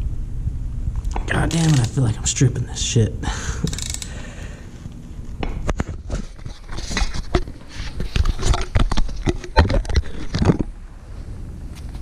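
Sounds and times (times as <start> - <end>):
metallic clicks of socket ratchet: 3.6 - 4.1.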